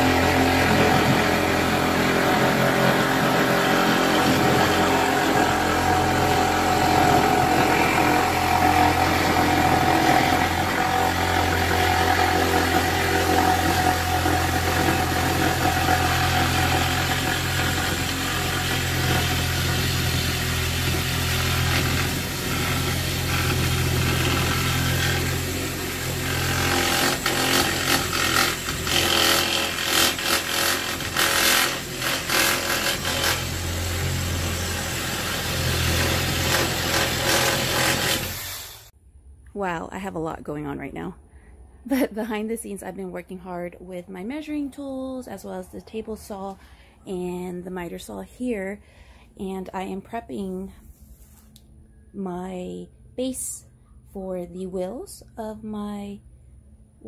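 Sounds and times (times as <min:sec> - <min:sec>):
reciprocating saw cutting wood: 0:00.0 - 0:38.9.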